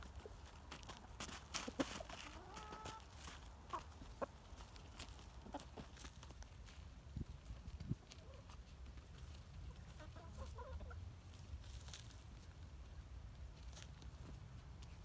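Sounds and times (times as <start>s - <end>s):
hens clucking softly: 0.0s - 6.4s, 7.7s - 11.4s
scratchy rustles in soil: 0.0s - 15.0s.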